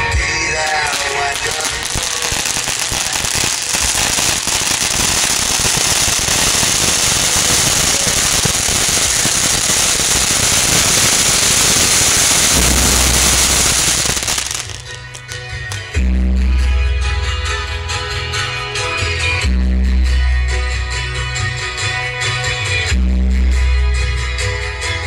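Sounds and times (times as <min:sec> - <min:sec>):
firework fountain crackling hiss: 0:00.6 - 0:15.8.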